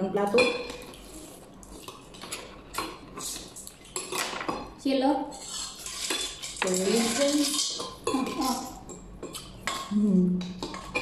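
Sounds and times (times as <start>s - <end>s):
cutlery clinking on plates: 5.7s - 11.0s.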